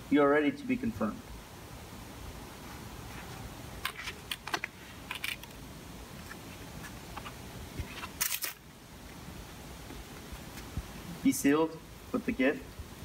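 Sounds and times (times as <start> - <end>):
steady background hiss: 0.0 - 13.0
footsteps: 2.6 - 5.0.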